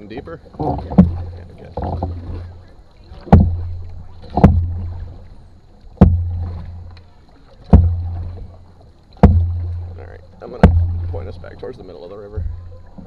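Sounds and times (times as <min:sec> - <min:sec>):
hollow ring through hull: 0:00.0 - 0:13.0
paddle knocking on canoe side: 0:00.6 - 0:02.5, 0:03.1 - 0:05.2, 0:05.9 - 0:07.0, 0:07.6 - 0:09.9, 0:10.5 - 0:11.2.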